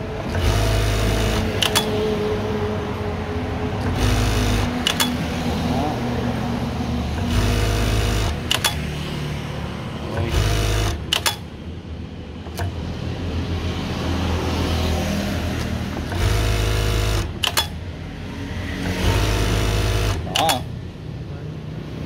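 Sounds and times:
machine hum: 0:00.0 - 0:21.0
industrial sewing machine stitching: 0:00.2 - 0:02.2, 0:03.8 - 0:05.6, 0:07.0 - 0:09.2, 0:10.1 - 0:11.6, 0:15.6 - 0:17.8, 0:18.8 - 0:20.8
thread trimmer clicks: 0:01.4 - 0:02.0, 0:04.8 - 0:05.3.

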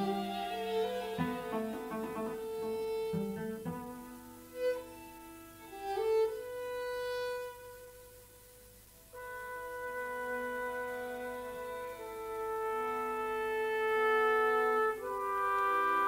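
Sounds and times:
chamber music with bowed strings: 0:00.0 - 0:08.0.

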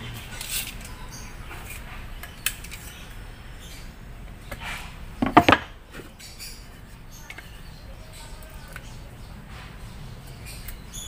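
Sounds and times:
objects knocking and clattering: 0:05.2 - 0:05.8.

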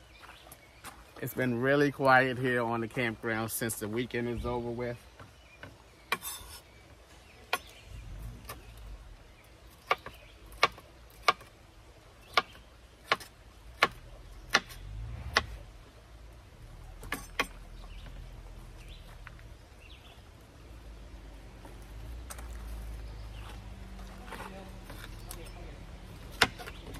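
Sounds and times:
knife chopping on wooden board: 0:09.8 - 0:11.5, 0:12.3 - 0:15.6, 0:26.3 - 0:26.8.

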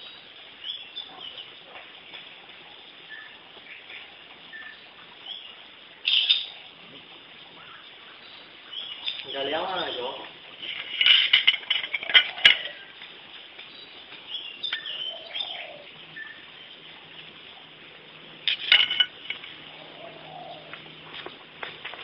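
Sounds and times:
birds chirping: 0:00.0 - 0:22.0.

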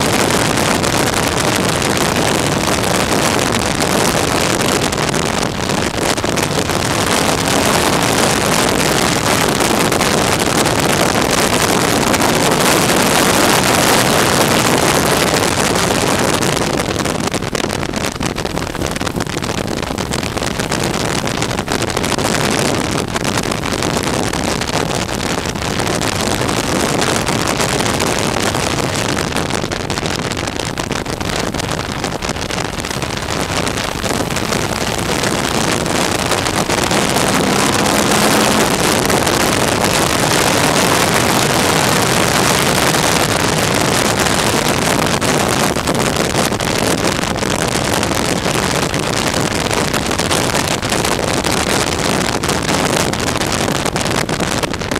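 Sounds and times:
wind rushing over microphone: 0:00.0 - 0:54.9
motorcycle engine cruising: 0:32.8 - 0:45.2.

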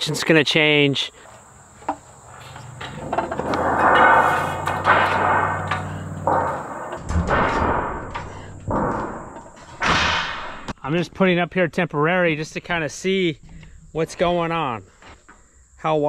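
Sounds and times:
metal scraping across wood: 0:01.2 - 0:10.7
sheet metal flexing and rattling: 0:01.3 - 0:10.7
sharp knocks: 0:01.8 - 0:10.8.

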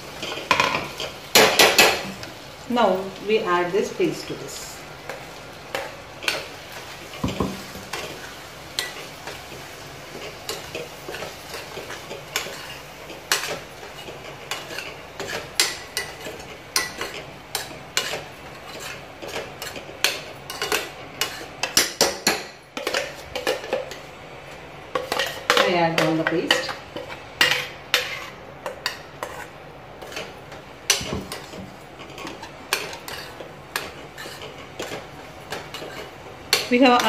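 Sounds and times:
curry sizzling: 0:00.0 - 0:37.0
metal spoon scraping pan: 0:10.1 - 0:24.0, 0:24.9 - 0:37.0.

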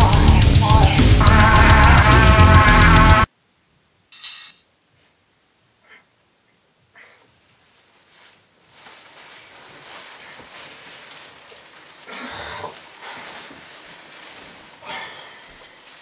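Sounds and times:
bedclothes rustling: 0:07.1 - 0:16.0.

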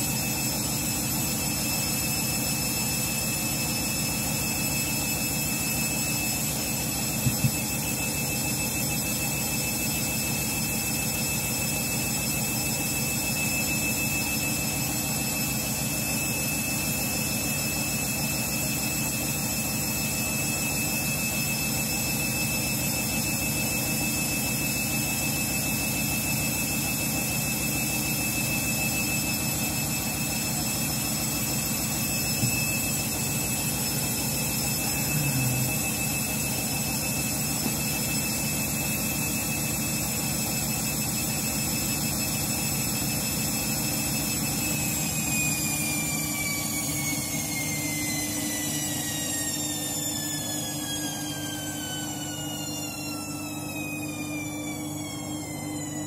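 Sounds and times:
washing machine drum spinning: 0:05.6 - 0:12.9, 0:25.1 - 0:40.7.

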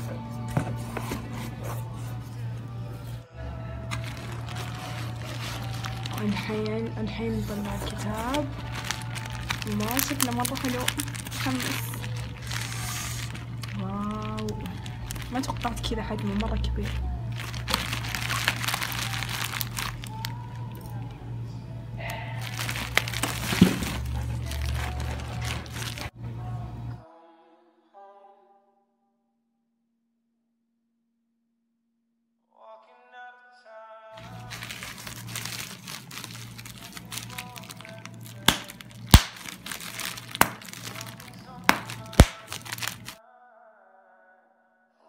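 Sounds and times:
steady low hum: 0:00.0 - 0:27.0
bubble wrap crinkling: 0:03.8 - 0:21.1, 0:22.0 - 0:26.1, 0:34.2 - 0:43.2
bubble wrap popping: 0:03.9 - 0:21.0, 0:22.4 - 0:26.1, 0:34.2 - 0:43.2.

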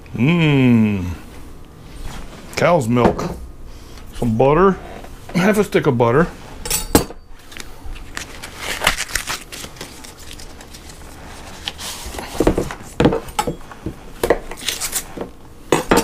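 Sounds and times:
paper wrapper crinkling and tearing: 0:07.4 - 0:12.2, 0:14.6 - 0:15.1.

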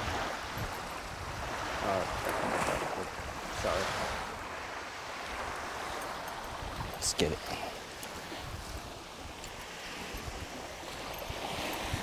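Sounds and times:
waves washing on shore: 0:00.0 - 0:12.0
wind on microphone: 0:00.0 - 0:12.0.

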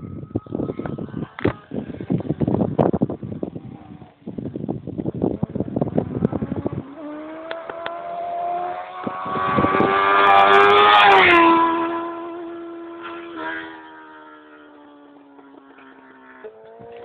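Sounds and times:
wind buffeting microphone: 0:00.0 - 0:17.0
motorcycle passing by: 0:05.9 - 0:17.0.

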